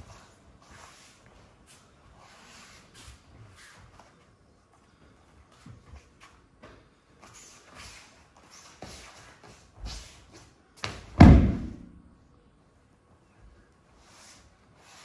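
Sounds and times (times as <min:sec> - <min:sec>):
feet scuffing on mats: 0:00.0 - 0:12.0
body thudding onto foam mats: 0:10.8 - 0:12.0.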